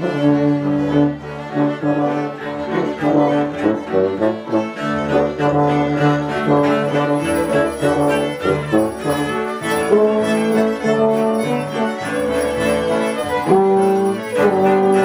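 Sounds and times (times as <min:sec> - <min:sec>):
bowed cello: 0:00.0 - 0:15.0
euphonium: 0:06.3 - 0:15.0.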